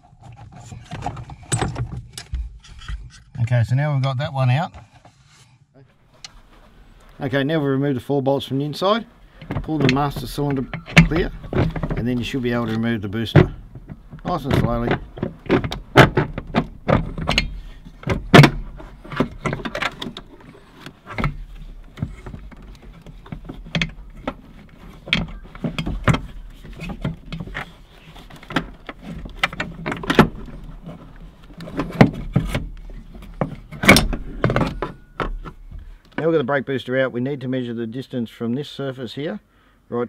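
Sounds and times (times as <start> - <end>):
metal parts clicking and clunking: 8.8 - 36.1.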